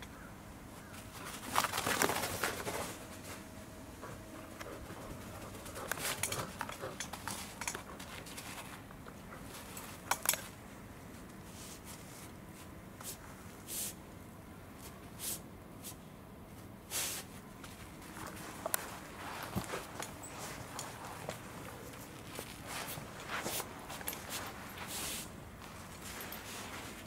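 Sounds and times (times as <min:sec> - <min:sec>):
dog paw scuffs on turf: 0:16.9 - 0:27.0
dog sniffing: 0:18.3 - 0:27.0.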